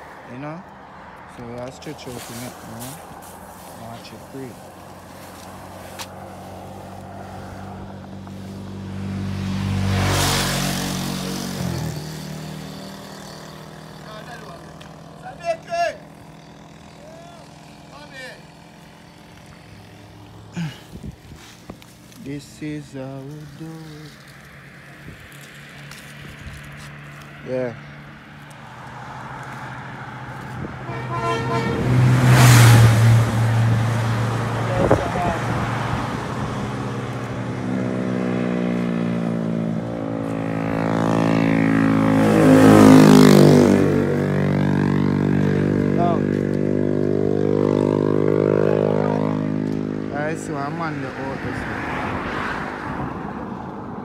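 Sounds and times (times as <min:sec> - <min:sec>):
vehicle passing by: 0:00.0 - 0:54.0
tyre and wind rush: 0:20.6 - 0:21.9
car horn toot: 0:30.8 - 0:32.6.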